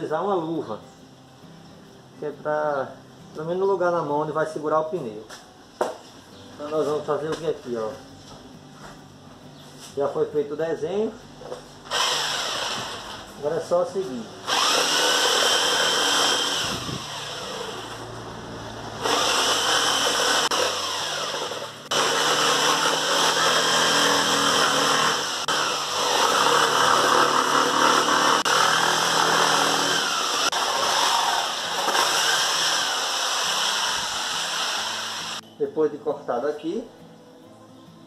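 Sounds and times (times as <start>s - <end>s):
jigsaw cutting through rubber tyre: 11.9s - 13.2s, 14.4s - 18.0s, 19.0s - 35.4s.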